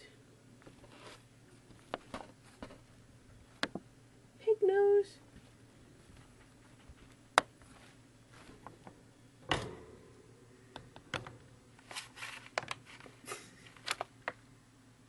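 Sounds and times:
guinea pig rustling in bedding: 0.7s - 3.6s, 5.2s - 8.7s, 11.8s - 13.2s.

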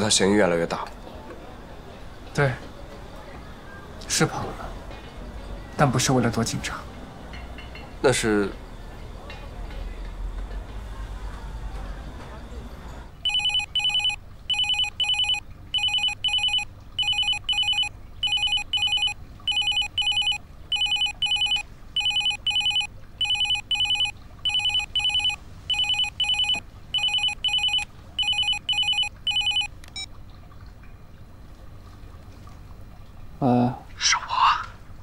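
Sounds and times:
electronic telephone ringing: 13.2s - 30.1s.

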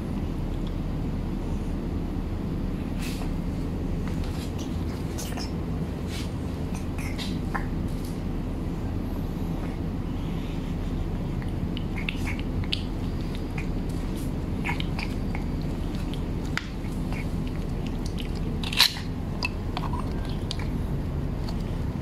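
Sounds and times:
low hum: 0.0s - 22.0s
cat chewing and licking wet food: 9.7s - 22.0s.

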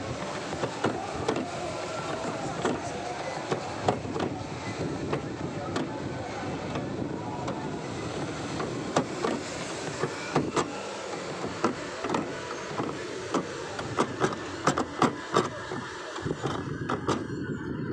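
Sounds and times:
amusement ride rushing noise: 0.0s - 17.9s
sharp clicks and knocks: 11.4s - 17.3s.

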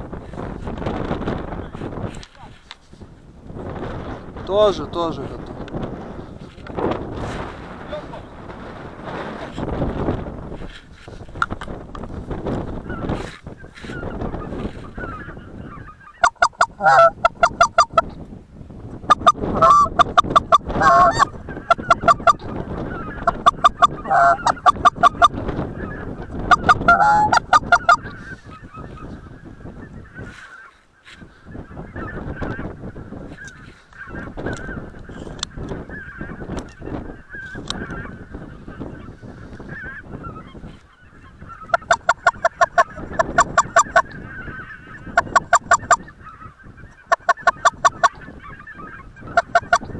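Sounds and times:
geese honking faintly: 12.4s - 18.1s, 19.1s - 49.9s
goose honking: 12.8s - 18.0s, 19.1s - 30.8s, 31.5s - 49.9s.

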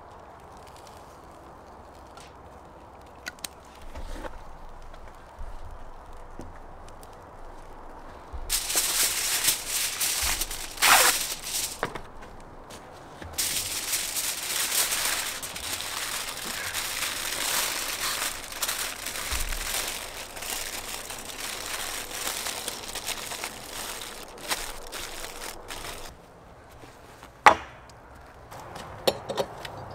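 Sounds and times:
foil crinkling and crumpling: 0.0s - 26.1s
foil ripping: 3.4s - 26.1s.

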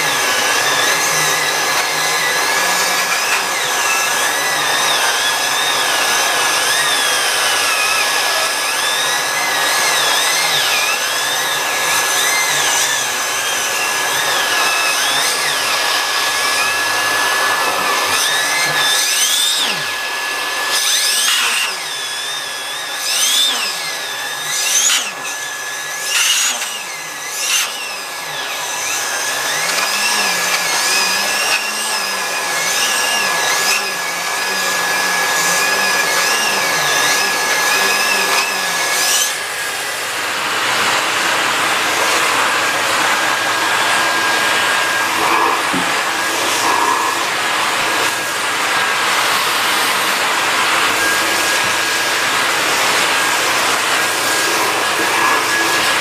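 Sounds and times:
vacuum cleaner whining: 0.0s - 56.0s
brush nozzle on fabric: 43.7s - 51.6s, 54.0s - 56.0s.

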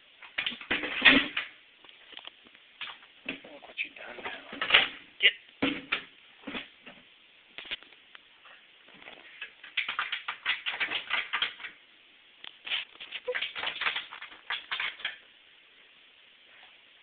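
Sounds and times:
dog claws scratching: 9.4s - 11.8s, 12.6s - 15.2s.

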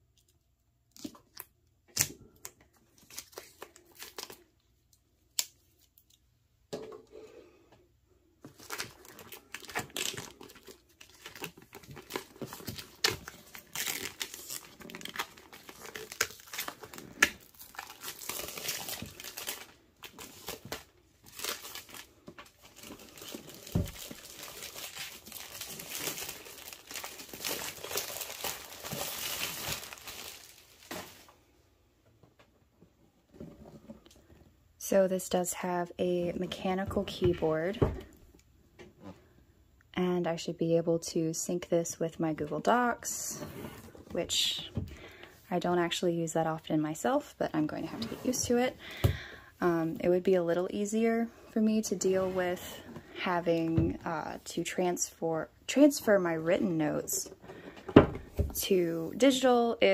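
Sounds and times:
plastic wrap crinkling: 8.4s - 31.4s.

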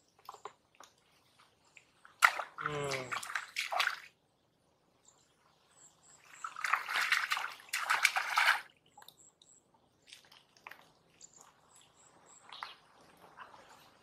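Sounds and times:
hands splashing in muddy water: 2.1s - 4.1s, 6.4s - 8.7s.

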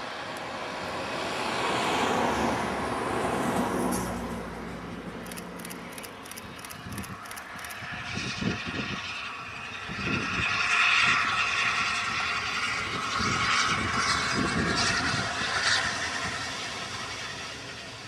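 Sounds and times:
train coaches running on track: 0.0s - 8.9s
wind buffeting microphone: 6.2s - 16.5s.

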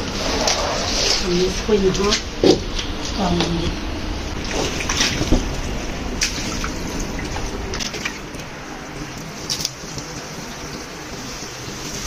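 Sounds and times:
sharp splashes or knocks: 4.4s - 8.5s
hose spraying water on rug: 9.2s - 12.0s.

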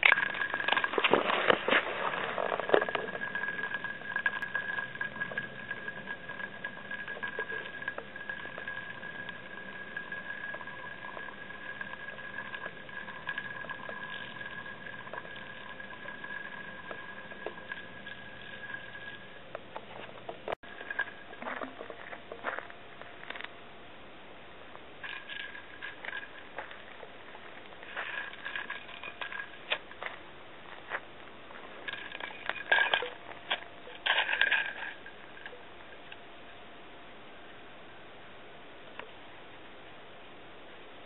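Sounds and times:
spinning top whirring on gravel: 0.0s - 23.5s, 25.0s - 36.2s.

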